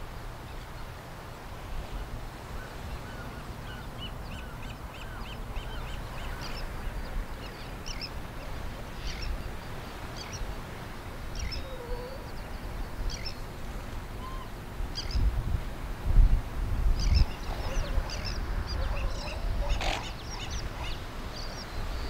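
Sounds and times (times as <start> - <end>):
birds chirping: 2.6 - 10.6, 11.2 - 13.4, 17.0 - 22.0.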